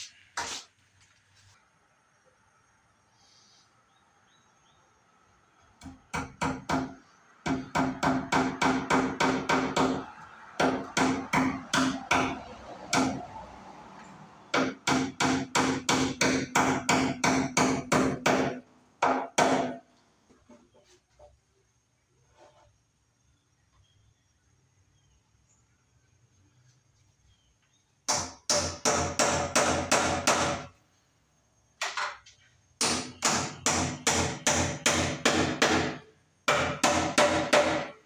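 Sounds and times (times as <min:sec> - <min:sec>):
hammer striking staples into wood: 0:05.8 - 0:10.0, 0:10.6 - 0:13.2, 0:14.5 - 0:19.8, 0:28.1 - 0:30.7, 0:32.8 - 0:38.0.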